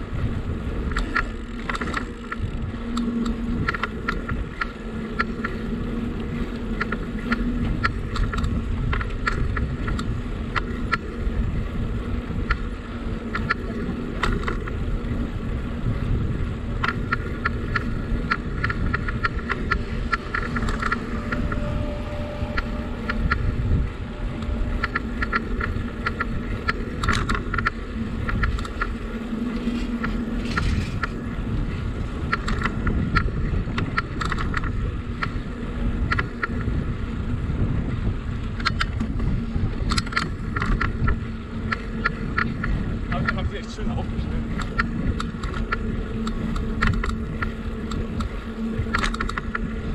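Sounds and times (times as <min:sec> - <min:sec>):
bicycle tyres rumbling: 0:00.0 - 0:49.9
faint steady hum: 0:00.0 - 0:49.9
wind on microphone: 0:00.0 - 0:49.9
light clicks and rattles: 0:00.9 - 0:11.2, 0:16.8 - 0:23.5, 0:24.1 - 0:35.4, 0:38.5 - 0:49.8.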